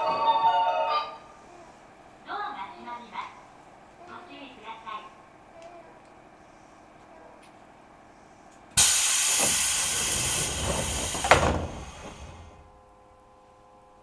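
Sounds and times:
sliding door thud: 8.8 - 12.8
train door air hiss: 8.8 - 12.8.

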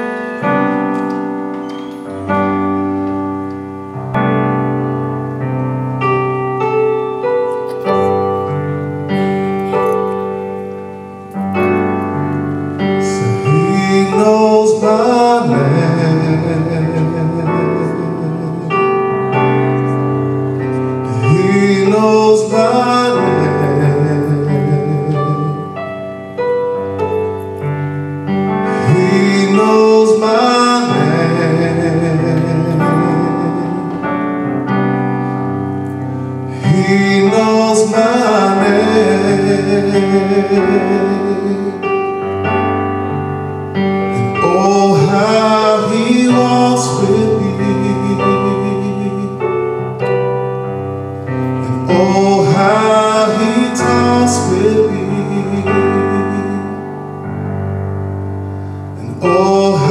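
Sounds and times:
piano chords: 0.0 - 59.9
man singing: 12.7 - 25.9, 28.3 - 34.9, 36.4 - 42.6, 43.9 - 50.1, 51.5 - 57.1, 59.0 - 59.9.

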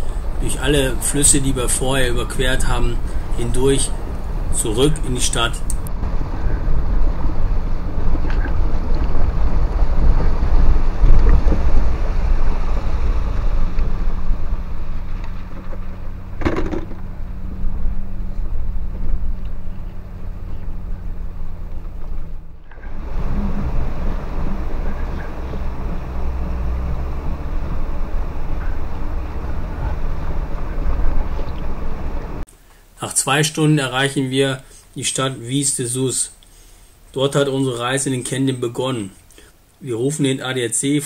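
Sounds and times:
tyres and body rumbling: 0.0 - 32.5.

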